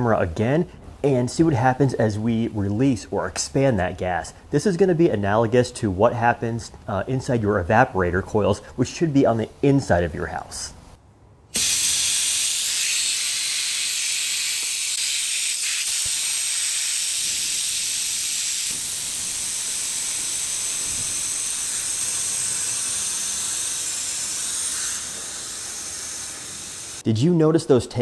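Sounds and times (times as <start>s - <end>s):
compressed air hissing: 11.5s - 27.0s.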